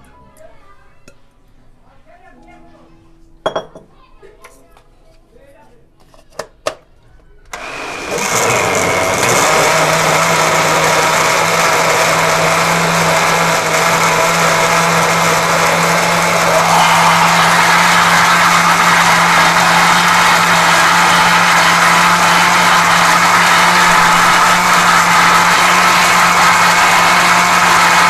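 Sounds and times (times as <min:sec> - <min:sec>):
blender running: 0:07.5 - 0:28.0.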